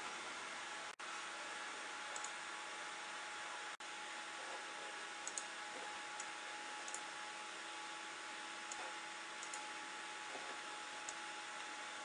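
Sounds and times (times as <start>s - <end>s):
computer mouse clicking: 2.1s - 2.4s, 5.2s - 5.5s, 6.2s - 7.1s, 8.7s - 9.7s.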